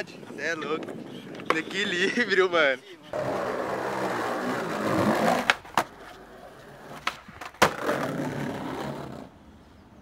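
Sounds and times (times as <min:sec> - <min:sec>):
skateboard wheels rolling on tiles: 0:03.1 - 0:09.3.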